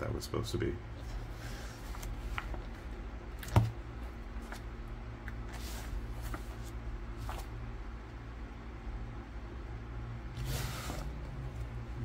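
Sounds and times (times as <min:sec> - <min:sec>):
steady low hum: 0:00.0 - 0:12.0
paper pages turning: 0:01.1 - 0:03.7, 0:05.4 - 0:07.5.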